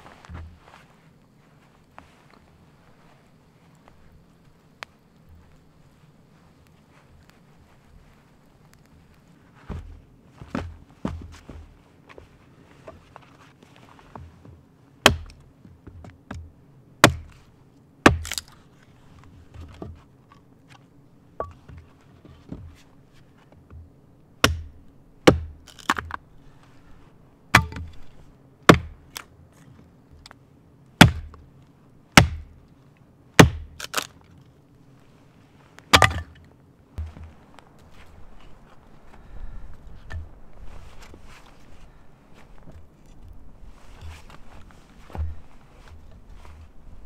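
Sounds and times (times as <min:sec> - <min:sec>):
axe chopping wood: 0:15.0 - 0:17.4, 0:18.0 - 0:18.5, 0:24.4 - 0:26.2, 0:27.5 - 0:28.1, 0:28.7 - 0:29.2, 0:31.0 - 0:31.4, 0:32.2 - 0:32.6, 0:33.4 - 0:34.1, 0:35.9 - 0:36.4.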